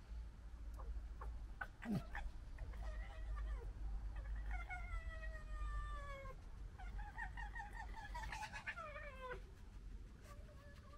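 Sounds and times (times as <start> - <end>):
fox wailing and stuttering calls: 4.2 - 9.4.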